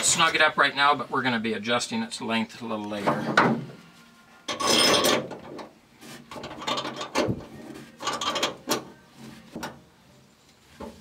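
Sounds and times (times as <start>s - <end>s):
wrench metal clicks and rasps: 6.3s - 7.3s, 8.0s - 8.9s.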